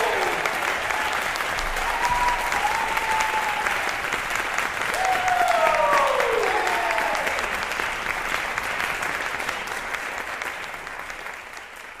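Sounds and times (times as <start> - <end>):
audience cheering: 0.0 - 7.6
audience applauding: 0.0 - 12.0.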